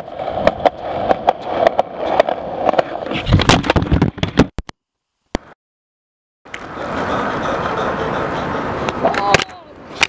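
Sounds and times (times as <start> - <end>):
skateboard wheels rolling on concrete: 0.0 - 4.5, 6.5 - 10.0.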